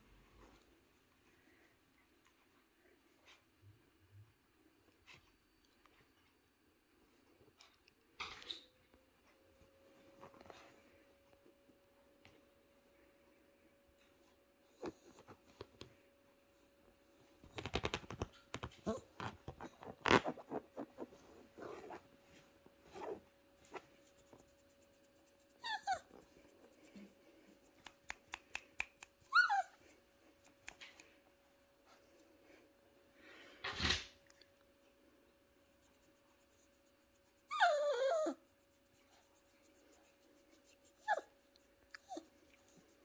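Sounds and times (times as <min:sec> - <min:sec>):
faint steady hum: 0:00.0 - 0:43.0
puppy whimpering: 0:18.8 - 0:22.0, 0:25.6 - 0:26.2, 0:29.2 - 0:29.8, 0:37.5 - 0:38.4, 0:41.0 - 0:41.3.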